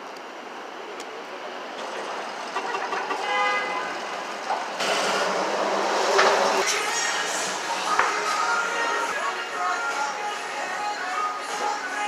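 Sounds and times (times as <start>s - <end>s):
city street traffic: 0.0s - 12.0s
vehicle horn: 2.6s - 4.0s.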